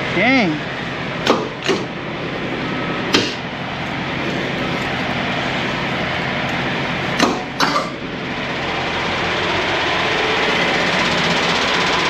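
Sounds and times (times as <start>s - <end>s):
truck engine idling: 0.0s - 12.0s
sharp knocks: 1.2s - 2.0s, 3.1s - 3.4s, 7.2s - 8.0s.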